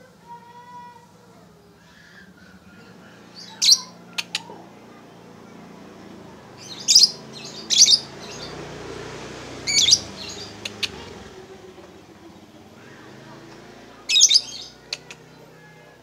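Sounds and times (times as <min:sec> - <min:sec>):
faint sharp clicks: 0:10.6 - 0:11.0.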